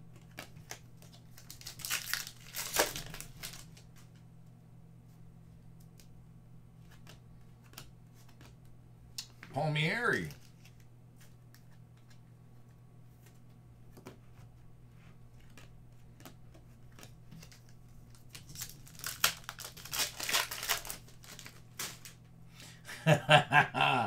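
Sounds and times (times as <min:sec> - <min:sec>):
faint clicks of packs handled: 0:00.1 - 0:04.3, 0:10.3 - 0:22.3
foil wrapper crinkling and tearing: 0:00.2 - 0:03.9, 0:17.0 - 0:22.2.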